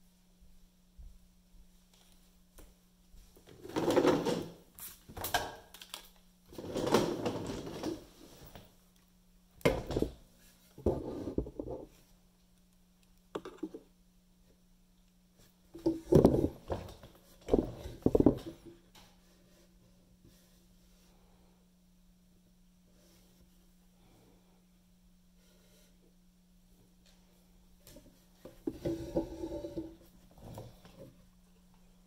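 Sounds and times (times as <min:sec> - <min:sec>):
faint steady hum: 0:00.0 - 0:32.0
handling knocks and scrapes: 0:15.4 - 0:19.7.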